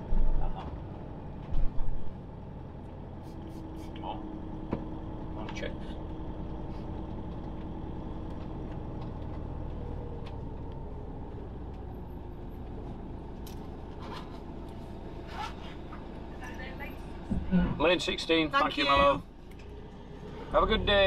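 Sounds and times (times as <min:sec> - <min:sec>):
engine and road rumble: 0:00.0 - 0:21.0.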